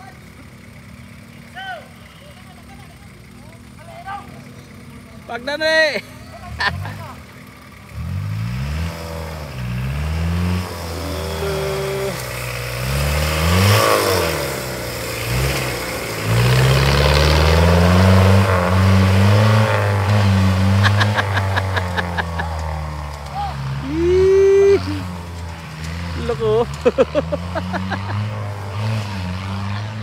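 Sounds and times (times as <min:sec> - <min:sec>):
off-road vehicle engine revving: 0:00.0 - 0:30.0.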